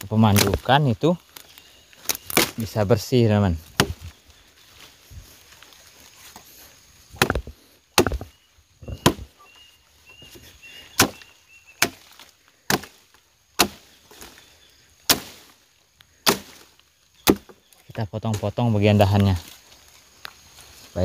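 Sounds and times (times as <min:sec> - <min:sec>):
machete chopping wood: 0:00.3 - 0:00.7, 0:02.0 - 0:02.7, 0:03.6 - 0:04.1, 0:07.1 - 0:09.4, 0:10.9 - 0:13.0, 0:13.6 - 0:14.0, 0:15.0 - 0:15.5, 0:16.2 - 0:17.6.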